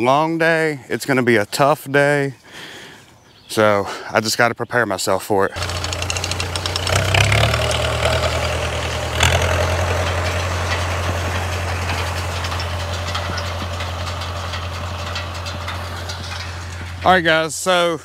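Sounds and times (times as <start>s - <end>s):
small tractor engine running: 5.6s - 17.6s.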